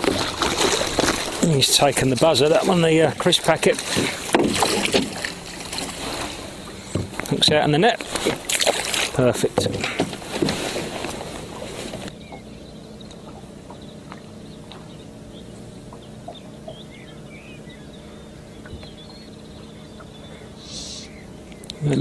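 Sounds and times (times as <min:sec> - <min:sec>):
water splashing in landing net: 0:00.0 - 0:12.1
faint bird chirps: 0:12.1 - 0:22.0.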